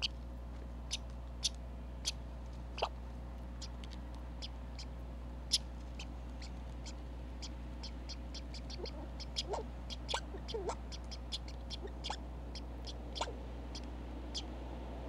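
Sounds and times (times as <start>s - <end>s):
squirrel chirping: 0.9s - 2.2s, 2.8s - 3.0s, 3.6s - 3.8s, 4.4s - 14.6s.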